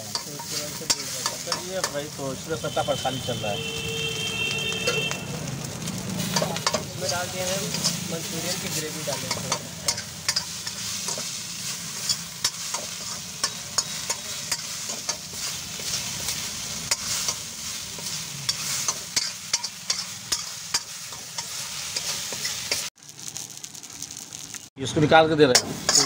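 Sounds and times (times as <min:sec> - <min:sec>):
spoon scraping a metal wok: 0:00.0 - 0:02.2, 0:06.2 - 0:22.9, 0:25.5 - 0:26.0
food sizzling: 0:00.0 - 0:26.0.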